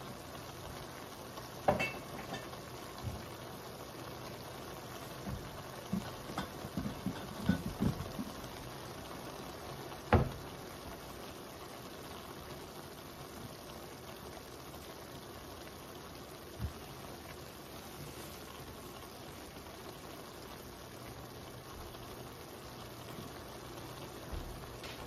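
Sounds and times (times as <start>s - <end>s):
beef and onions sizzling: 0.0s - 25.0s
knocks on skillet: 1.7s - 2.5s, 5.2s - 8.4s, 10.1s - 10.4s.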